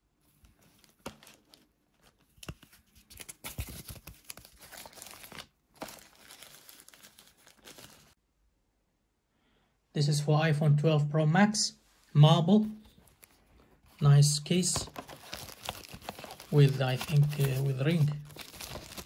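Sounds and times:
plastic packaging crinkling: 0:00.5 - 0:08.2, 0:12.8 - 0:19.0.

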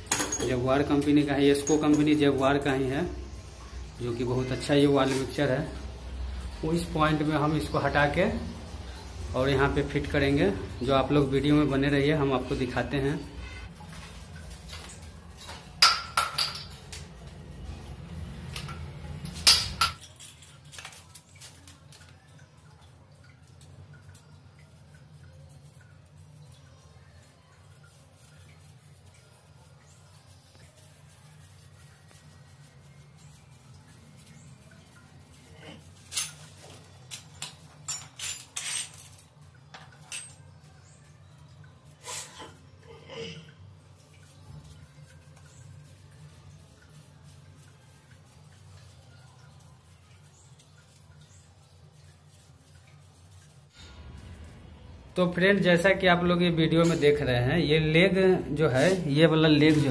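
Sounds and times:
metal fittings clinking: 0:00.0 - 0:02.6, 0:13.9 - 0:17.2, 0:18.5 - 0:22.1, 0:35.2 - 0:40.7.

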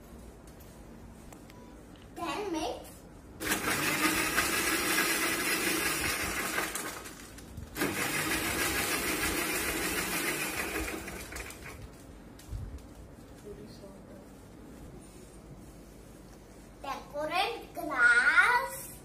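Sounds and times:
mixer grinder running: 0:03.4 - 0:11.8.

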